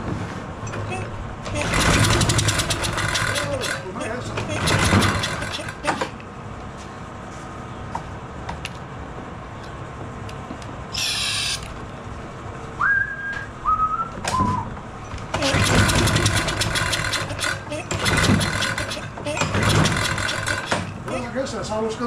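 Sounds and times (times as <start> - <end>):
mower engine cranking: 0.6 - 6.2, 15.3 - 21.3
whistled notes: 12.8 - 14.7.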